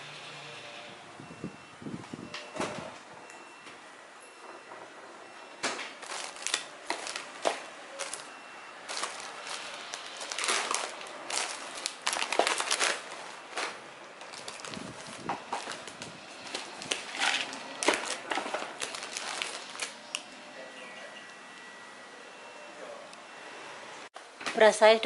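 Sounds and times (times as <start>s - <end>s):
plastic packaging crinkling: 6.0s - 20.3s.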